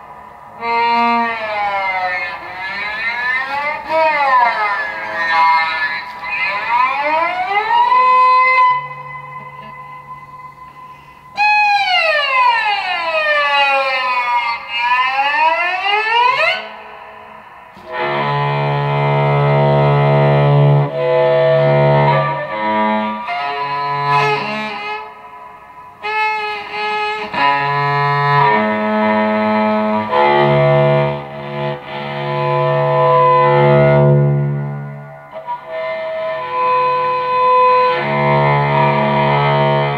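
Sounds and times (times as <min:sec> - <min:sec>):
bowed electric cello: 0:00.0 - 0:39.9.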